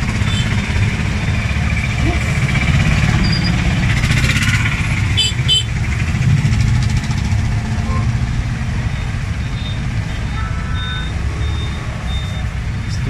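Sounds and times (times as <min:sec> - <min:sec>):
engine running low rumble: 0:00.0 - 0:13.0
short high beeps: 0:08.9 - 0:13.0.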